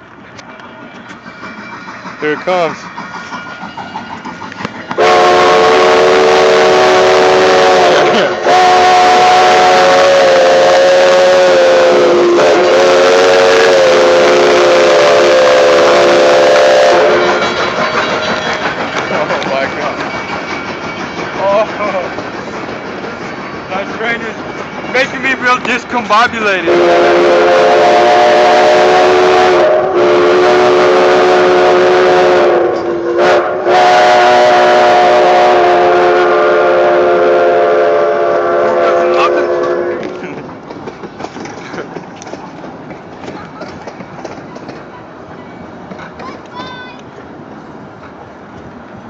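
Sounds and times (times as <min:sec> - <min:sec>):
train running noise: 0:00.0 - 0:49.0
steam locomotive whistle chord: 0:03.5 - 0:18.7, 0:26.7 - 0:40.2.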